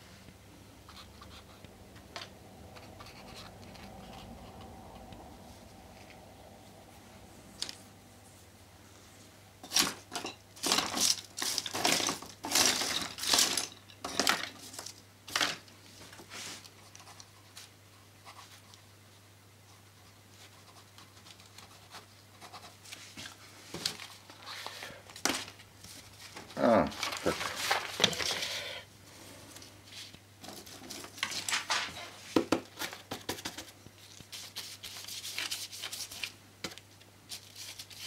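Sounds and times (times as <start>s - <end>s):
paper rustling and crinkling: 9.7s - 17.7s, 22.8s - 28.5s, 29.8s - 38.0s.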